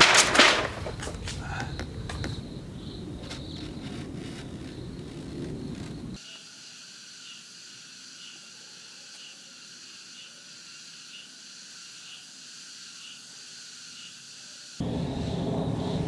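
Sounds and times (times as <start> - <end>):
insects chirping: 0.0 - 16.0
pulsing insect call: 0.0 - 16.0.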